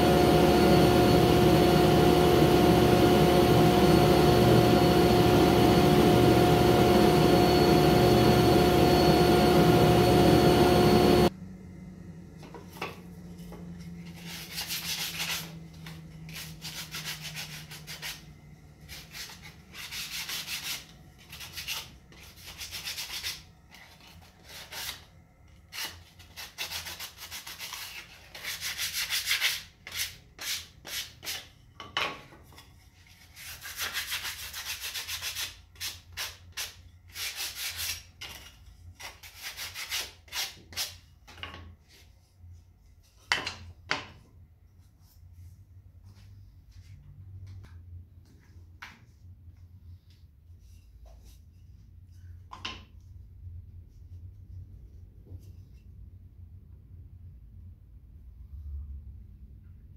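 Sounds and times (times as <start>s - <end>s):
sanding block rubbing wood: 0.0s - 11.3s
shop machinery drone: 0.0s - 14.1s.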